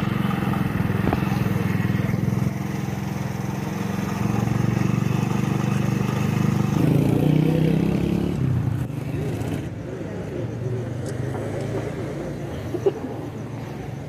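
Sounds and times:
car engine idling: 0.0 - 6.8.

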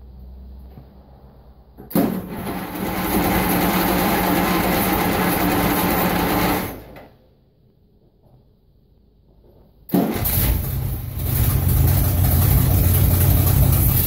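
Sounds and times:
electric starter cranking engine: 9.9 - 14.0.

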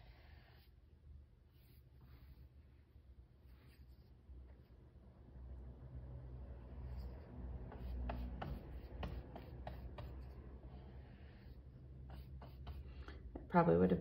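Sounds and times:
brush scratching on plywood: 6.8 - 10.5, 11.2 - 13.0.

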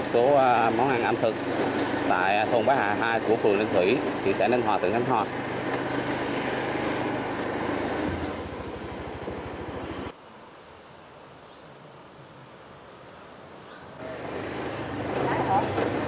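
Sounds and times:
small engine puttering: 0.1 - 10.1, 14.0 - 16.0.

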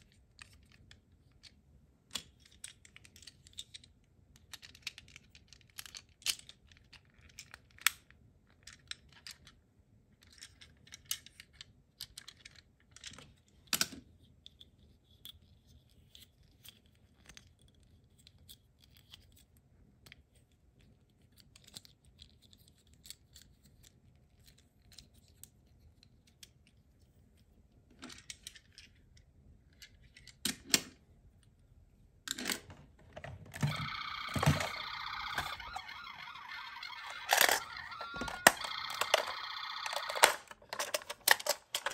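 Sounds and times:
plastic toy parts clicking: 0.3 - 9.6, 10.2 - 15.4, 32.3 - 41.9.

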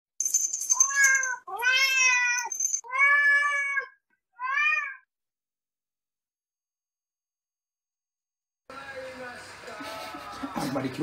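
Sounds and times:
cat meowing: 0.9 - 5.1.

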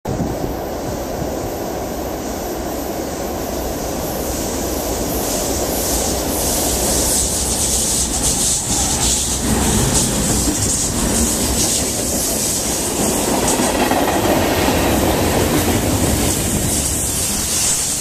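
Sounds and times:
steel wheels hissing on rail: 0.1 - 18.0
diesel locomotive rumble: 4.3 - 18.0
train wheel clicks: 6.5 - 18.0.

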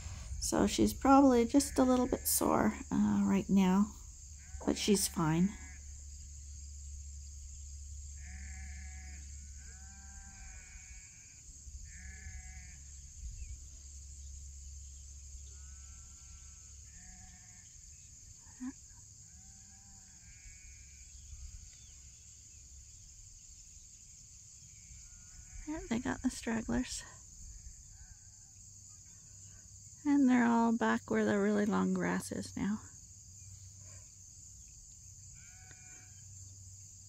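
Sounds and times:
sheep bleating: 8.2 - 12.8, 35.4 - 36.2.

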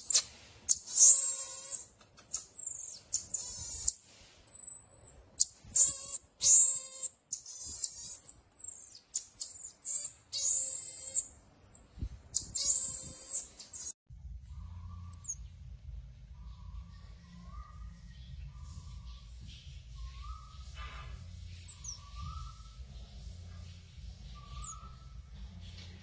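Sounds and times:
marmosets shrill calls: 0.0 - 14.0, 21.5 - 22.8, 24.4 - 25.0.

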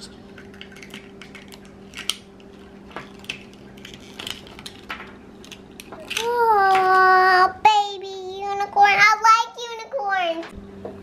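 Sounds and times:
low steady hum: 0.0 - 11.0
toy egg shell cracking: 3.2 - 7.0.

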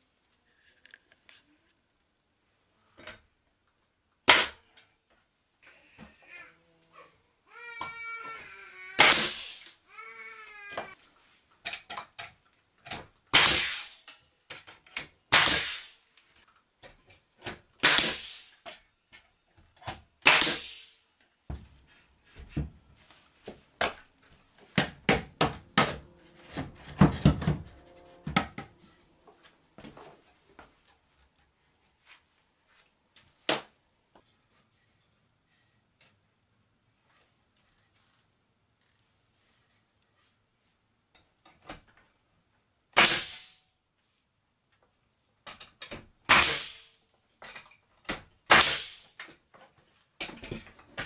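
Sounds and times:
nail gun shots: 4.3 - 4.6, 9.0 - 9.7, 13.3 - 14.1, 15.3 - 16.0, 17.8 - 18.5, 20.2 - 21.0, 43.0 - 43.6, 46.3 - 47.0, 48.5 - 49.2.

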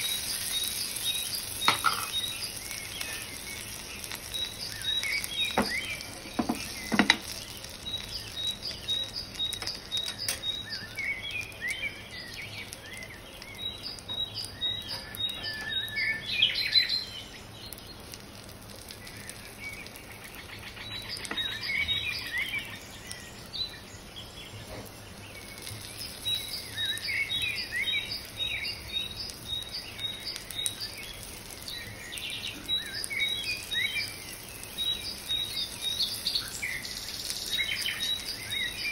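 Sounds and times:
birds chirping: 0.0 - 38.9
chicken frying sizzle: 0.0 - 38.9.

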